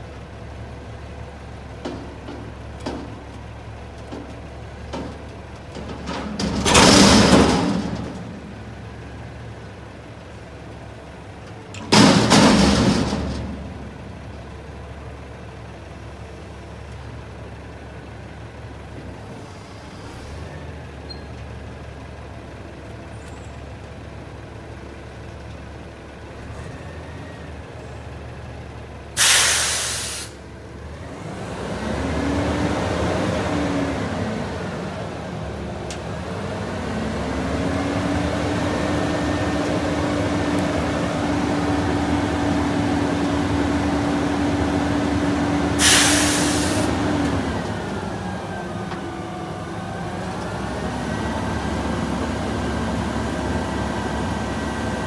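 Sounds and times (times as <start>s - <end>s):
garbage truck engine idling: 0.0s - 31.1s, 32.6s - 55.0s
air brake hiss: 29.2s - 30.4s, 45.8s - 47.0s.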